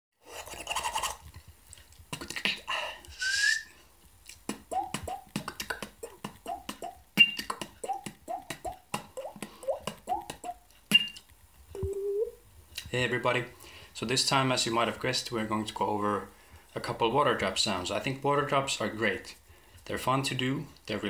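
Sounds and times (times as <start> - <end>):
hissing and rattling mouth sounds: 0.2 - 3.5, 4.2 - 11.2
beatboxed water-drop bloops: 2.1 - 2.7, 4.3 - 12.2.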